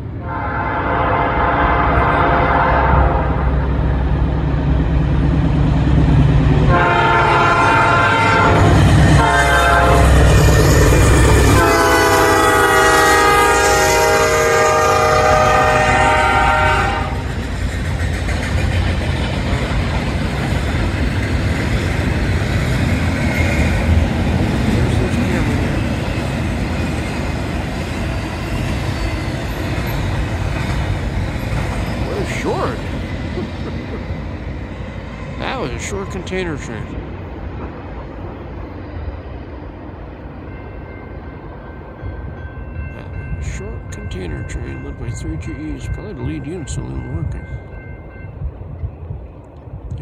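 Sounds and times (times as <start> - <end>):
wheels rumbling on rail: 0.0 - 50.0
locomotive horn blasts: 0.2 - 3.5, 6.7 - 10.2, 11.5 - 17.3
diesel engines rumbling: 1.1 - 40.8.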